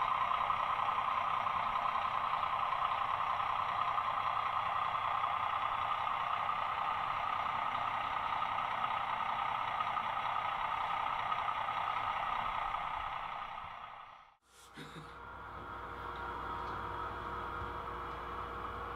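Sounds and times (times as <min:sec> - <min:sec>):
model train running: 0:00.0 - 0:14.2.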